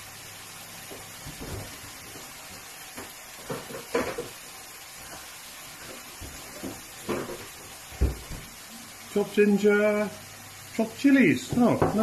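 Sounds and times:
food hissing on the hob: 0.0s - 12.0s
kitchen containers clattering: 3.4s - 4.4s.

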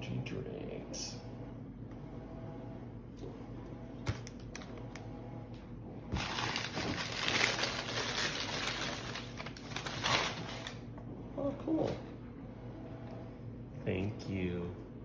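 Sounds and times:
tissue paper rustling: 6.2s - 10.8s.

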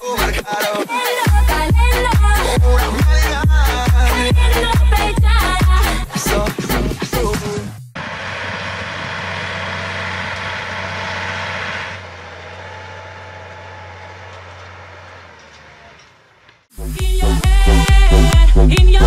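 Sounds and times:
dance music: 0.0s - 8.0s, 16.8s - 19.0s
tractor diesel engine under load: 1.3s - 18.2s.

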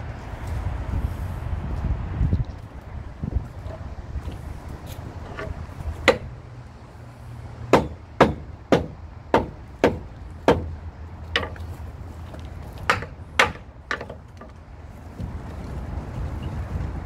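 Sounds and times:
hammer knocking on wooden beam: 5.3s - 6.3s, 7.7s - 10.7s, 11.4s - 11.6s, 12.8s - 14.6s.

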